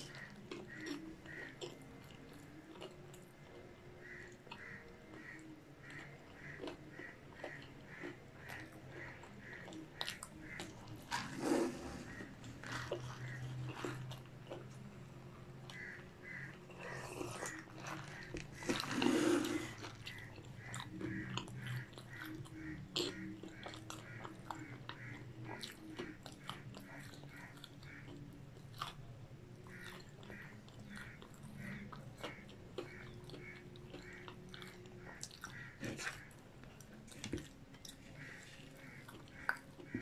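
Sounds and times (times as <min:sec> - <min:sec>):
close chewing food: 0:00.0 - 0:40.0
sipping from a paper cup: 0:11.0 - 0:14.0, 0:16.7 - 0:20.1.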